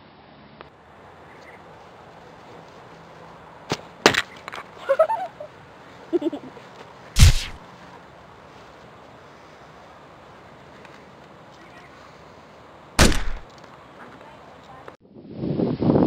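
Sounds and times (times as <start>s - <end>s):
heavy deep thump: 7.2s - 7.6s
sharp cracks: 7.2s - 7.6s, 13.0s - 13.8s.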